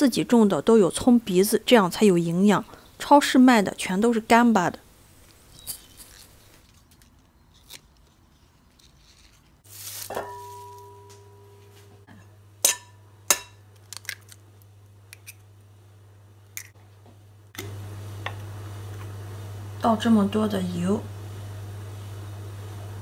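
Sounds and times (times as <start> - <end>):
low steady hum: 0.0 - 23.0
glass bowl ringing: 10.1 - 12.0
egg cracking: 12.7 - 15.7, 16.4 - 16.8.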